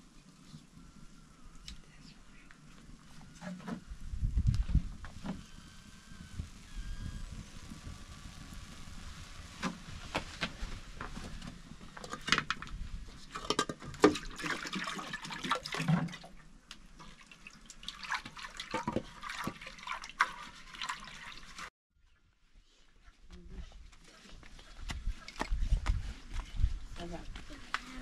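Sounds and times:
batter cooking on griddle: 0:03.2 - 0:13.3.

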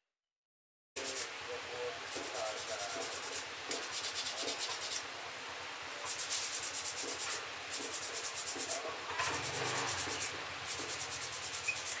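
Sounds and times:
scratchy abrasive rubbing on metal: 0:01.0 - 0:01.4, 0:02.1 - 0:05.0, 0:06.0 - 0:12.0.

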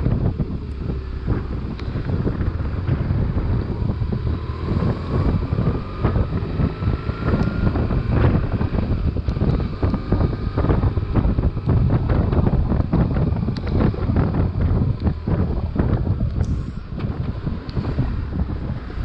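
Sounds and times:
motorcycle engine running: 0:00.0 - 0:19.0
wind buffeting microphone: 0:00.0 - 0:19.0.

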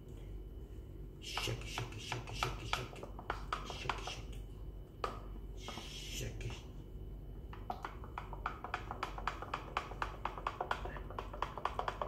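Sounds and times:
low steady hum: 0:00.0 - 0:12.0
stick tapping a plastic cup: 0:01.3 - 0:04.2, 0:07.6 - 0:12.0.

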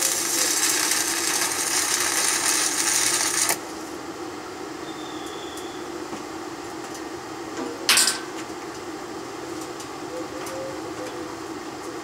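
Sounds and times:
welder cooling fan humming: 0:00.0 - 0:12.0.

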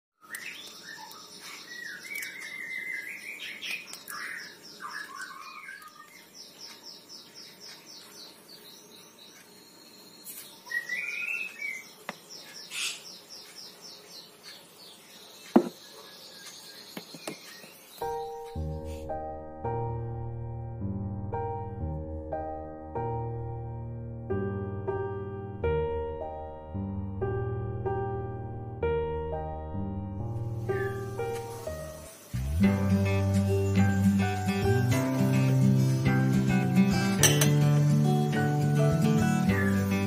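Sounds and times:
birds chirping: 0:00.2 - 0:18.9, 0:30.6 - 0:40.0
music: 0:18.0 - 0:40.0.

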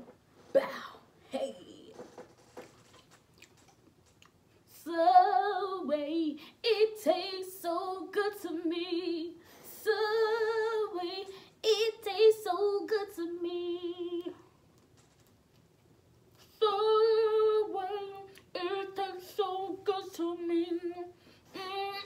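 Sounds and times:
woman singing unaccompanied: 0:04.7 - 0:14.4, 0:16.5 - 0:22.0.

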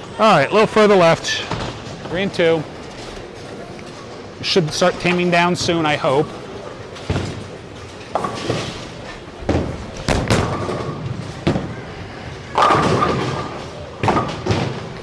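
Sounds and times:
bowling balls crashing into pins: 0:05.6 - 0:15.0.

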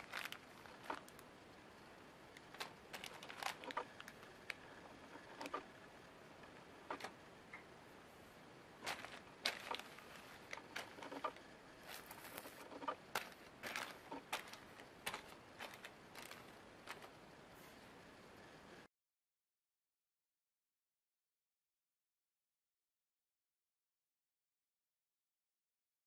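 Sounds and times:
plastic bags crinkling: 0:00.0 - 0:01.2, 0:02.4 - 0:05.6, 0:08.8 - 0:17.2.

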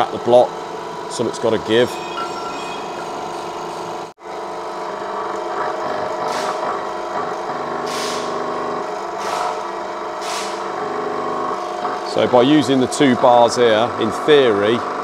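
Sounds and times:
press mechanical drone: 0:01.6 - 0:04.1.

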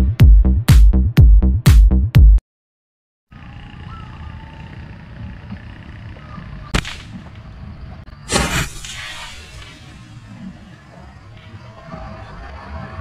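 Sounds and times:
sharp snap: 0:06.7 - 0:07.2.

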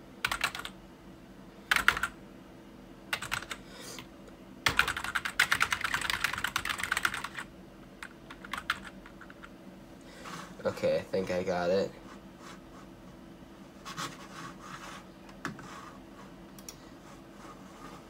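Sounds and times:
low steady hum: 0:00.0 - 0:18.0
typing on computer keyboard: 0:00.2 - 0:00.7, 0:01.7 - 0:02.2, 0:03.1 - 0:03.6, 0:04.7 - 0:09.5.

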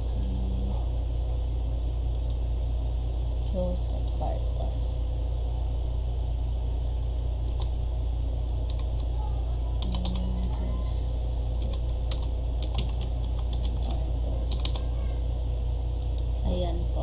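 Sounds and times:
steady low hum: 0:00.0 - 0:17.0
keyboard typing clicks: 0:07.4 - 0:07.7, 0:08.6 - 0:09.1, 0:09.8 - 0:10.6, 0:11.6 - 0:14.8.

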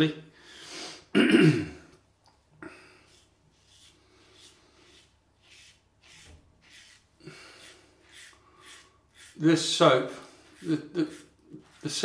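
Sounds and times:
razor scraping stubble: 0:03.0 - 0:12.0.

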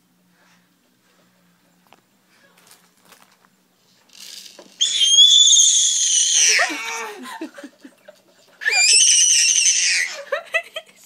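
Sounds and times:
baby screaming: 0:04.8 - 0:07.2, 0:08.6 - 0:10.3.

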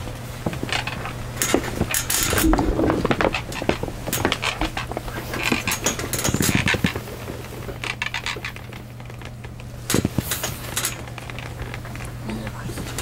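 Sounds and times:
low hum: 0:02.1 - 0:04.4.

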